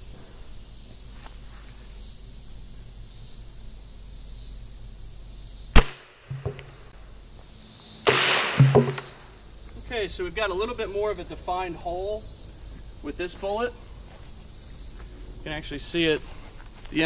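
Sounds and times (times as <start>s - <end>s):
pistol shot: 5.8s - 6.8s, 8.1s - 9.3s
faint knock: 6.3s - 6.8s.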